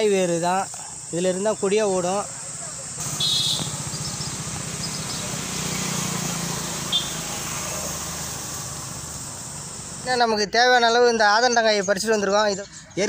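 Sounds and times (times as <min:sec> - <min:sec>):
engine running: 0:02.9 - 0:10.2.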